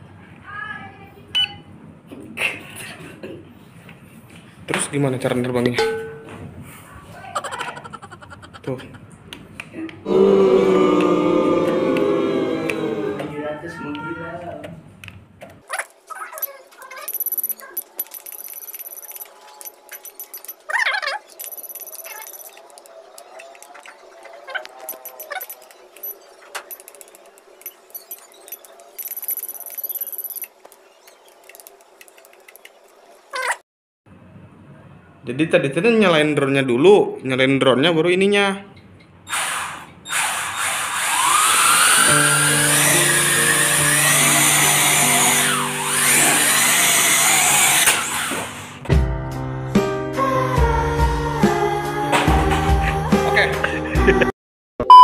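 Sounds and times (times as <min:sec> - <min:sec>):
quadcopter propellers whining: 0:40.1 - 0:48.6
background music: 0:48.9 - 0:54.3.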